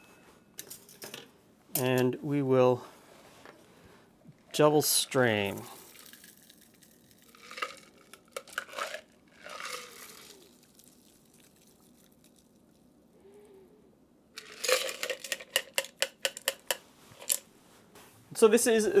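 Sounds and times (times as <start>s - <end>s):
ice rattling in cocktail shaker: 5.6s - 12.8s, 14.4s - 16.8s.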